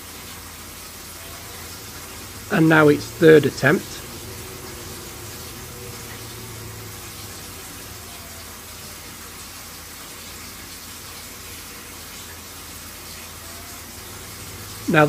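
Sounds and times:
boiler hissing: 0.0s - 15.0s
low hum: 1.2s - 9.1s.

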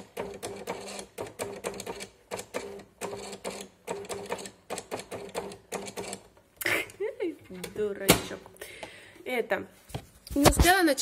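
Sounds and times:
cash register printing: 0.0s - 6.3s.

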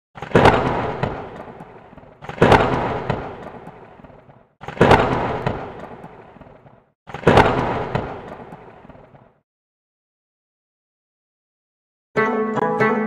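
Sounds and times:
impact bang sound effect: 0.2s - 9.4s.

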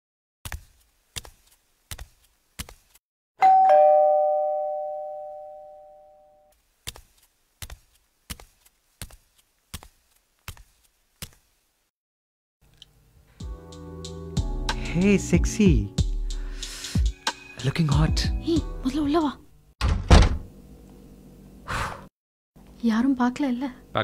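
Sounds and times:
doorbell ding-dong: 3.4s - 6.4s.

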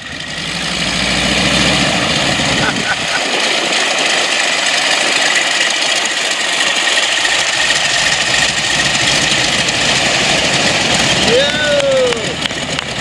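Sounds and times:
radial engine running: 0.0s - 13.0s.

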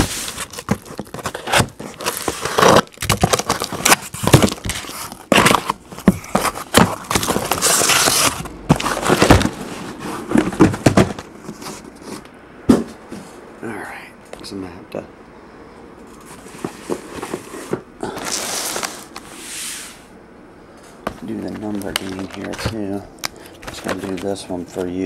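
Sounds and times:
cardboard boxes knocking and scraping: 0.0s - 13.3s, 16.3s - 18.4s.

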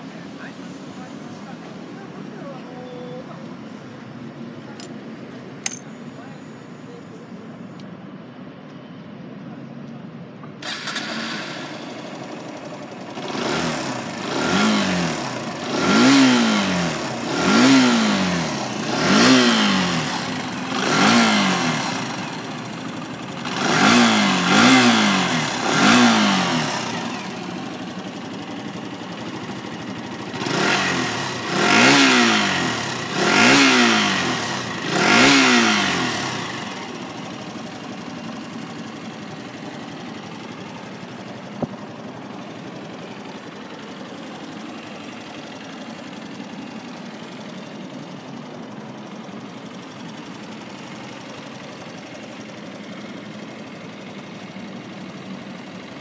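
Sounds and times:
motorcycle engine idling: 0.0s - 8.3s, 10.6s - 56.0s
engine revving: 10.6s - 12.2s, 13.0s - 28.4s, 29.2s - 40.4s.

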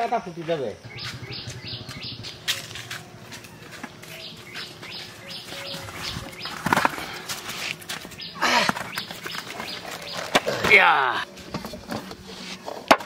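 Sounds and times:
sandal footsteps on dirt path: 0.8s - 10.6s
birds calling: 0.8s - 11.3s.

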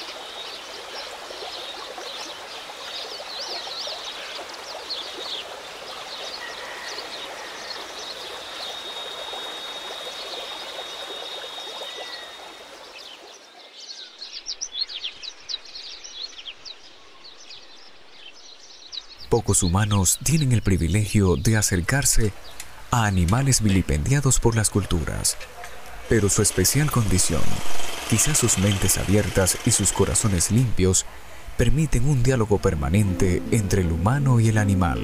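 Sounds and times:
small birds chirping: 0.0s - 35.0s
thin high whine: 25.8s - 33.9s
rushing hiss: 26.1s - 31.9s.

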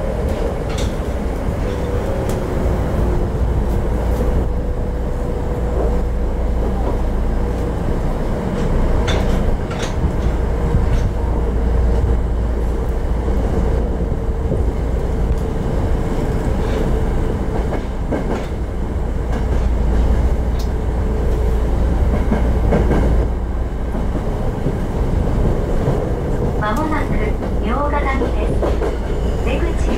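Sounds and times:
subway car rumble: 0.0s - 29.9s
wheels clicking over rail joints: 0.2s - 2.5s, 8.5s - 11.2s.

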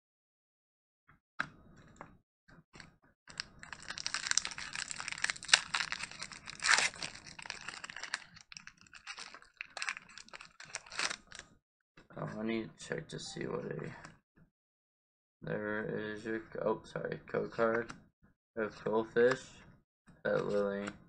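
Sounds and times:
foil pack tearing: 3.3s - 11.4s
foil wrapper crinkling: 3.3s - 11.4s.

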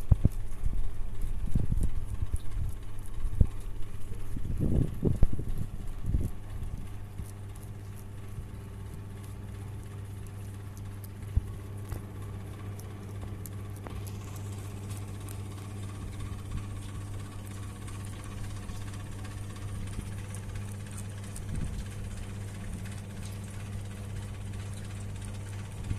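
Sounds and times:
low machine hum: 0.0s - 25.9s.

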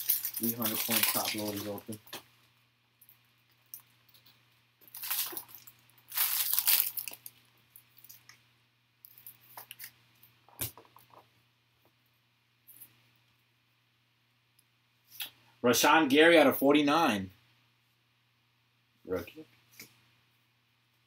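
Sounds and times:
plastic packaging crinkling and tearing: 0.0s - 2.0s, 3.7s - 8.2s.

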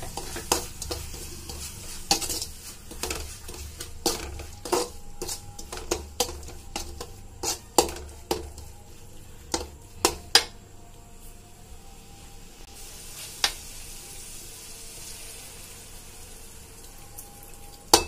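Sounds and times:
metal spatula scraping and knocking: 0.0s - 8.9s.

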